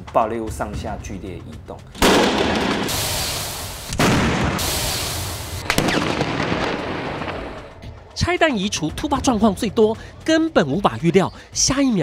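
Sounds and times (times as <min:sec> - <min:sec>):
explosion blasts: 0:02.0 - 0:07.8
explosion rumble: 0:02.0 - 0:07.9.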